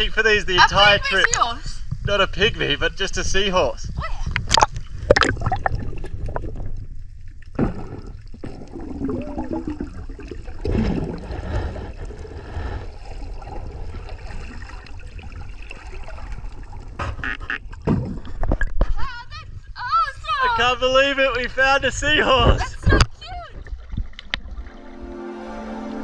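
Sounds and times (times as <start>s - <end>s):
low underwater rumble: 4.2s - 19.0s, 22.4s - 25.3s
underwater water sloshing and gurgling: 4.2s - 19.0s, 22.9s - 25.4s.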